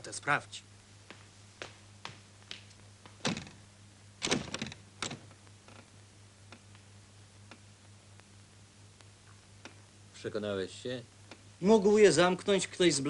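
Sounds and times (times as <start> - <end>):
steady low hum: 0.0 - 13.0
door handle and latch rattling: 4.2 - 5.3.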